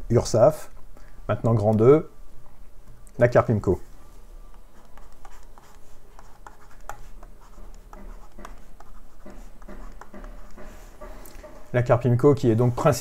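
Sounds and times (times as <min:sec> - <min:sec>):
stylus scratching on tablet: 0:04.5 - 0:11.7.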